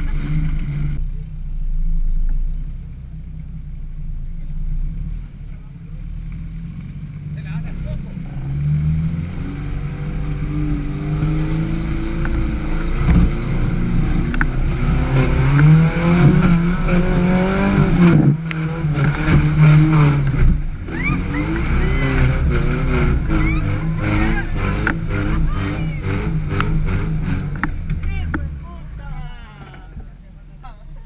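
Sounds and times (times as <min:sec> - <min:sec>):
car engine revving hard: 0:06.5 - 0:28.8.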